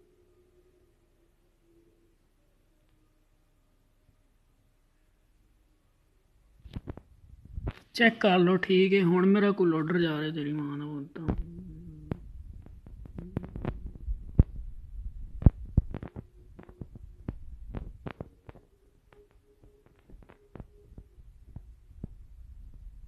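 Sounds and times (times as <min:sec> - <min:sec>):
faint steady hum: 0:00.0 - 0:23.0
low rumble: 0:11.2 - 0:18.4, 0:20.2 - 0:23.0.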